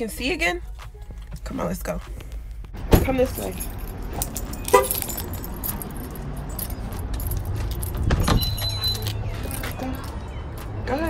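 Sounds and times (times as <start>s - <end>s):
metal jingling while walking: 3.1s - 10.2s
door clattering open: 7.8s - 9.1s.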